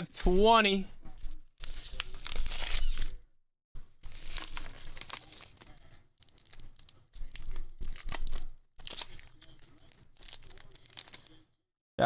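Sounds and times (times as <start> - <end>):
bubble wrap and plastic crinkling: 1.6 - 3.0, 3.8 - 11.5.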